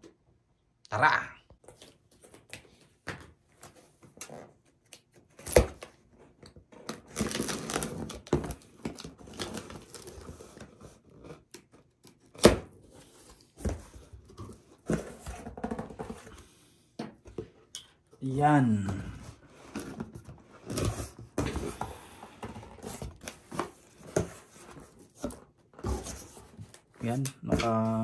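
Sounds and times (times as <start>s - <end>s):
cardboard tearing: 6.8s - 12.9s.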